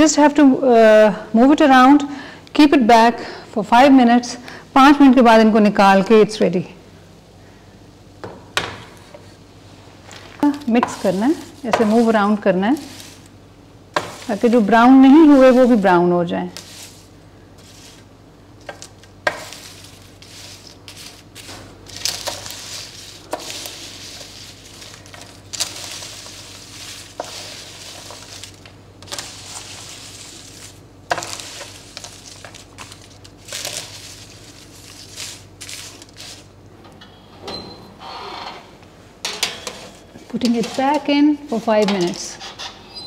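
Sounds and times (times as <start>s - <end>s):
steady low hum: 0.0s - 42.9s
pastry rustling and crunching: 10.0s - 13.4s, 14.0s - 36.6s
utensil scraping metal tray: 10.4s - 13.3s, 14.0s - 18.1s, 18.7s - 36.5s, 39.5s - 43.0s.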